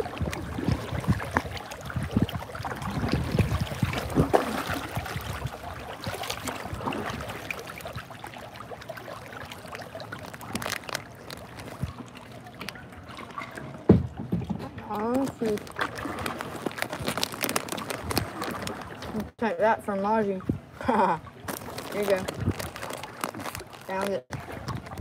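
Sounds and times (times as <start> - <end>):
paddle splashing in water: 0.0 - 19.3, 21.3 - 25.0
water trickling and dripping: 0.0 - 19.3.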